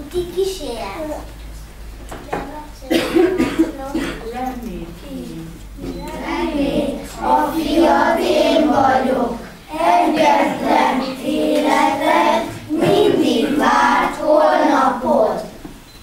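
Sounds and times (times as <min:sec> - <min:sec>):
children singing in unison: 0:06.2 - 0:15.6.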